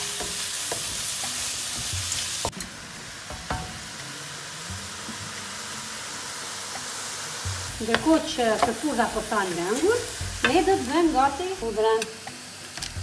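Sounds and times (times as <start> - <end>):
spatula tapping pan: 0.0 - 2.7, 7.5 - 11.4
mushrooms sizzling in frying pan: 0.0 - 13.0.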